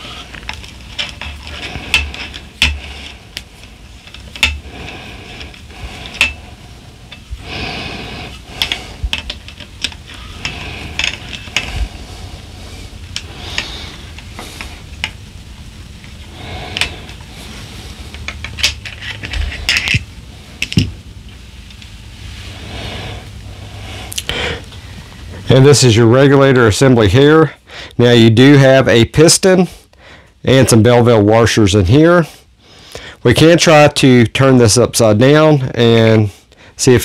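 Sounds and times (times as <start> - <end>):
metallic clicks and scrapes: 0.0 - 6.4, 8.3 - 12.0, 18.1 - 20.9
hands handling rifle: 18.1 - 20.9.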